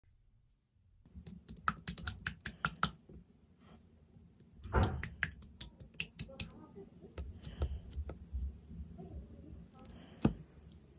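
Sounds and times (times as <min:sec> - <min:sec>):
slime squish: 0:01.1 - 0:03.1, 0:04.4 - 0:06.6
spoon clicking in sticky slime: 0:01.2 - 0:03.0, 0:04.4 - 0:06.6.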